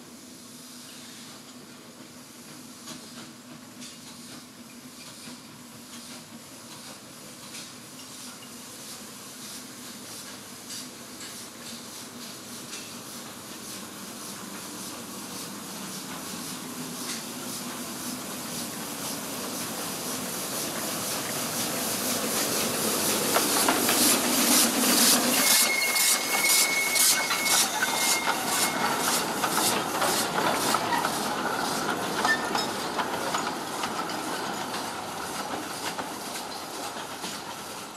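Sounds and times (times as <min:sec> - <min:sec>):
steam locomotive chuffing: 0:00.0 - 0:37.9
coaches clacking over rail joints: 0:14.3 - 0:37.9
thin squeal: 0:25.2 - 0:29.0.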